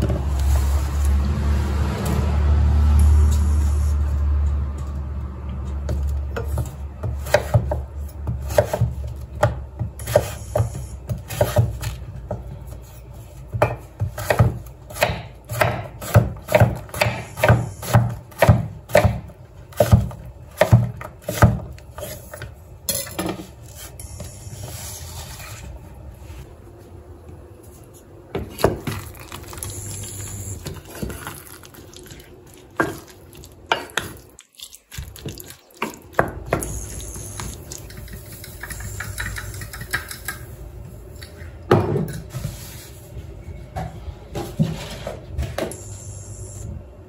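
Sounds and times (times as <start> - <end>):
knife chopping on wooden board: 13.6 - 19.2.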